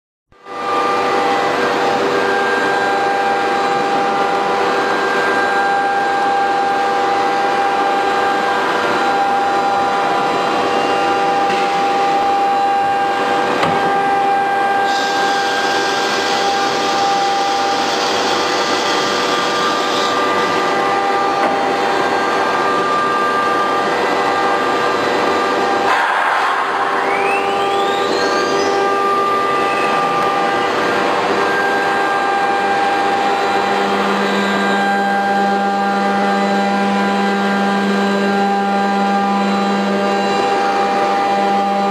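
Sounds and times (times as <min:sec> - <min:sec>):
cutter milling wood: 0:00.4 - 0:41.9
router spindle whine: 0:00.4 - 0:41.9.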